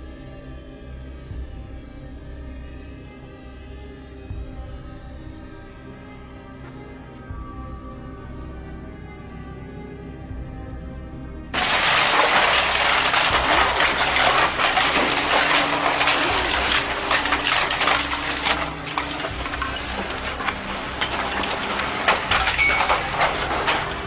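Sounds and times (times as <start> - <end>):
rubble and debris crashing: 11.5 - 24.0.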